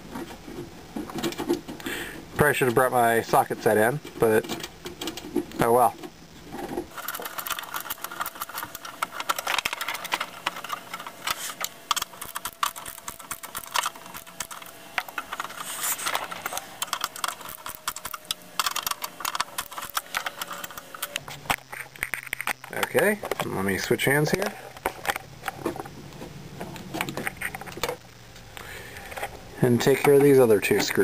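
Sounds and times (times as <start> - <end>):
screwdriver clicking and scraping: 6.9 - 23.5, 26.7 - 28.0.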